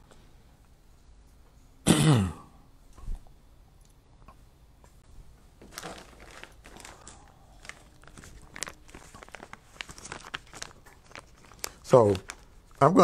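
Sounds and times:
paper rustling and crinkling: 5.6 - 13.0
crisp paper ticks: 5.8 - 13.0.

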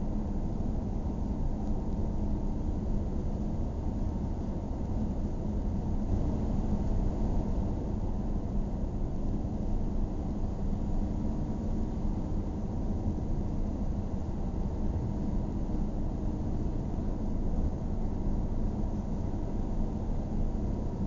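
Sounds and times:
faint engine hum: 0.0 - 21.0.

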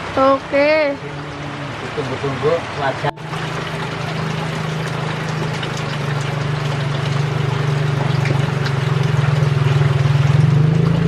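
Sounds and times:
small engine running: 3.2 - 11.0.

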